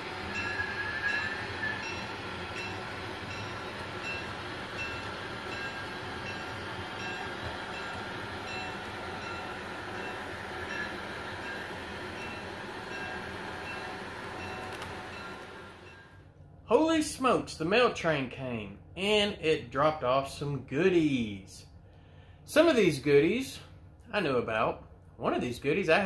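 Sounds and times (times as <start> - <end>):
model train rolling on track: 0.0 - 18.0.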